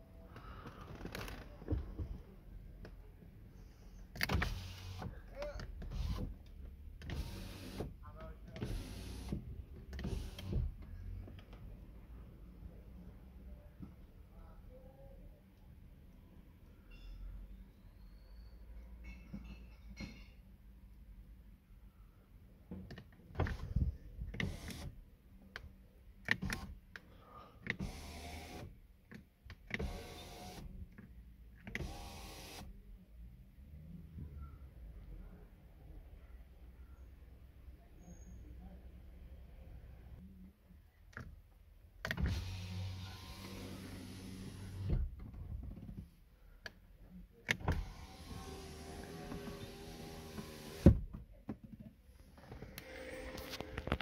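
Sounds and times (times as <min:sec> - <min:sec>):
power window motor: 0:07.0 - 0:07.9, 0:08.6 - 0:10.7, 0:27.7 - 0:28.7, 0:42.1 - 0:45.0, 0:47.5 - 0:51.0.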